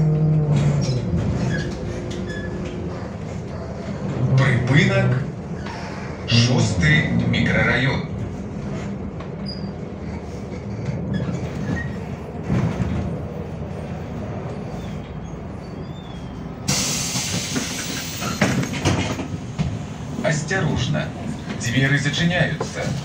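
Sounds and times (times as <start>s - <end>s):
clunks and rattles: 0.0s - 6.0s, 8.2s - 13.5s, 16.7s - 23.0s
bus engine and road rumble: 0.0s - 23.0s
compressed air hiss: 16.7s - 18.2s.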